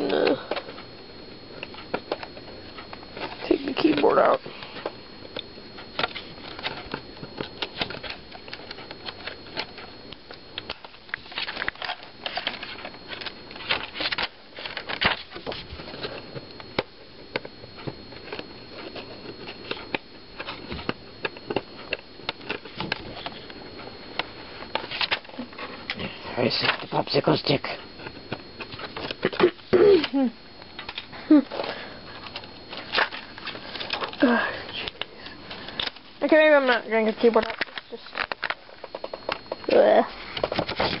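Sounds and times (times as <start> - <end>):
steady high-pitched hiss: 0.0 - 41.0
clicks and rattles of laptop parts: 4.8 - 23.6, 24.2 - 26.0, 28.0 - 36.1, 36.7 - 39.6, 40.4 - 41.0.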